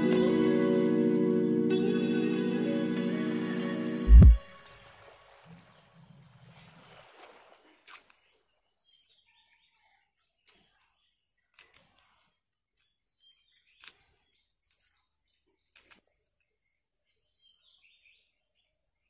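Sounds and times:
faint bird chirps: 4.1 - 19.0.

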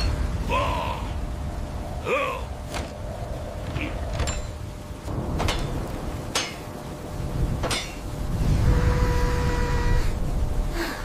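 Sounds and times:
metallic clanks: 7.6 - 8.1.

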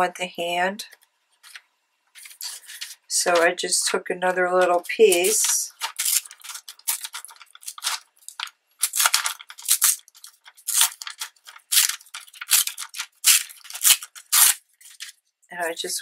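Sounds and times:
magazine paper tearing and rustling: 2.2 - 3.1, 4.6 - 15.2.

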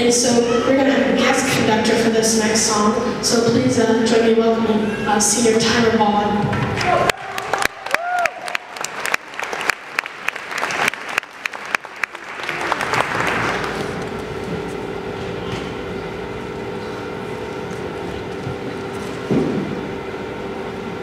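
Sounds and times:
audience applause: 6.7 - 14.2.

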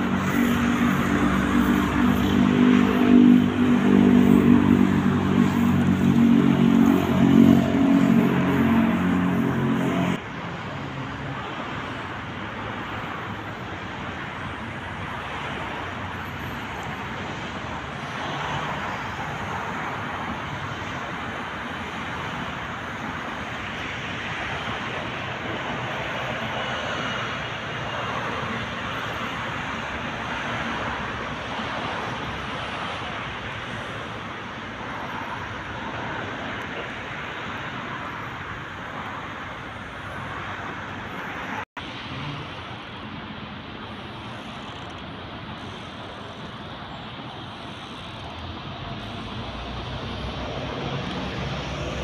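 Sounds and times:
road traffic hum: 0.0 - 52.0
vehicles passing: 0.0 - 52.0.

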